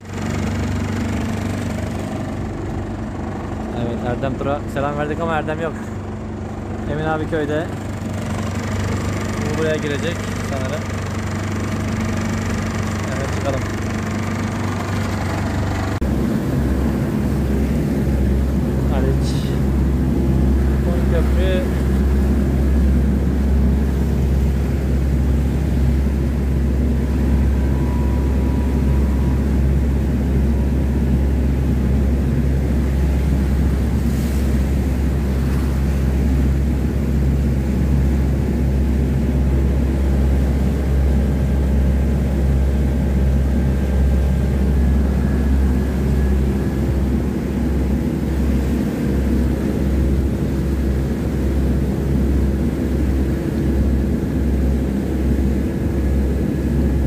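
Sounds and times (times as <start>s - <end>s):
motorboat engine droning: 0.0s - 57.0s
water rushing from wake: 0.0s - 57.0s.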